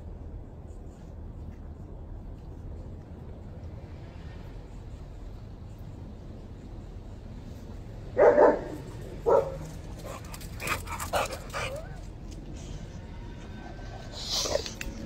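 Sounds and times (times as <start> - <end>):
dog barking: 8.2 - 9.7.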